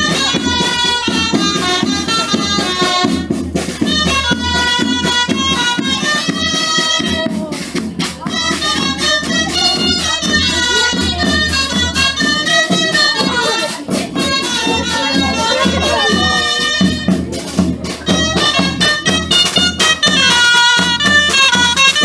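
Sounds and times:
folk wind pipes melody: 0:00.0 - 0:22.0
snare drum: 0:00.0 - 0:22.0.

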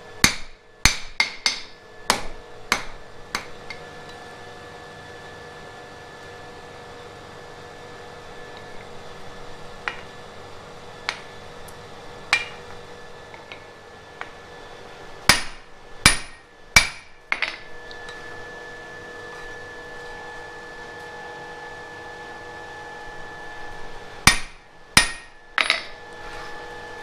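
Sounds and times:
faint steady hum: 0:00.0 - 0:27.0
hammer striking iron on anvil: 0:00.2 - 0:03.8, 0:12.3 - 0:12.7, 0:15.3 - 0:17.7, 0:24.3 - 0:26.0.

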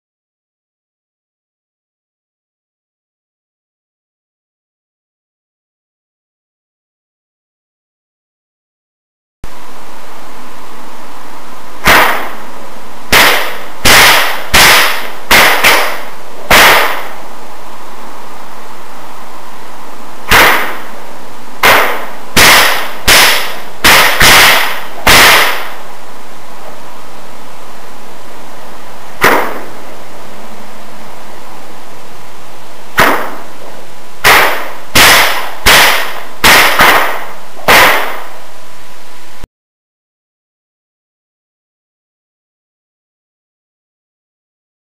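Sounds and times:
bullwhip cracking with echo: 0:11.8 - 0:12.5, 0:13.1 - 0:17.2, 0:20.3 - 0:21.0, 0:21.6 - 0:25.8, 0:29.2 - 0:29.8, 0:33.0 - 0:33.6, 0:34.2 - 0:38.4.

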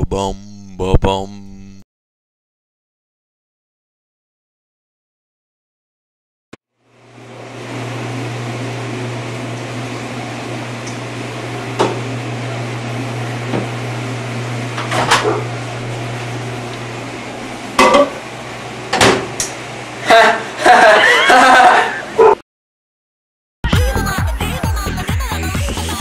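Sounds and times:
microwave door clunk: 0:18.9 - 0:19.3.

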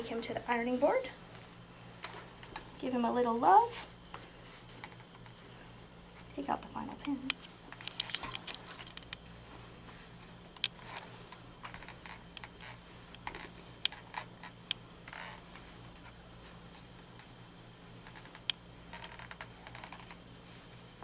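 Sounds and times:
steady low hum: 0:00.0 - 0:21.0
fabric rustling: 0:15.0 - 0:21.0.

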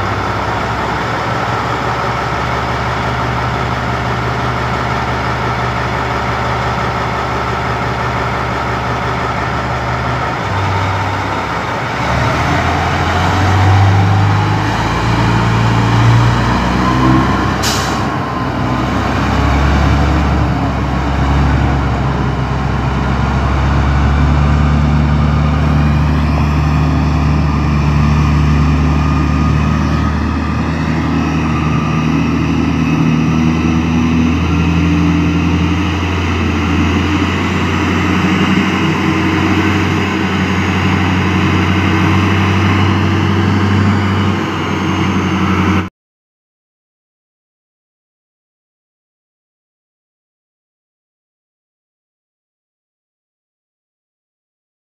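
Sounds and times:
diesel engine idling and revving: 0:00.0 - 0:45.9
rising whine: 0:07.4 - 0:45.9.

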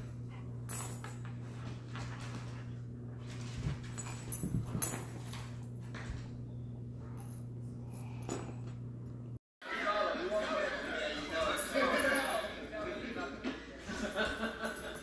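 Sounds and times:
steady low hum: 0:00.0 - 0:09.4.

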